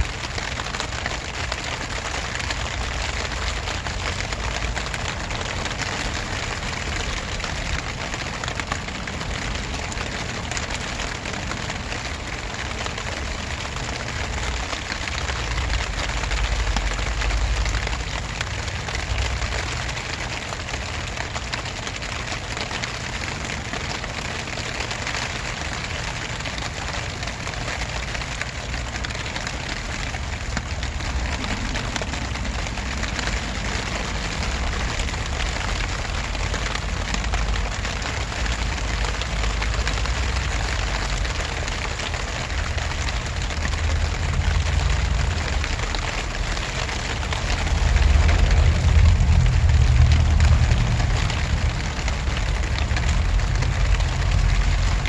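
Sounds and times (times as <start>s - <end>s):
steady rain falling: 0.0s - 55.0s
low rumble: 30.3s - 37.4s, 47.2s - 55.0s.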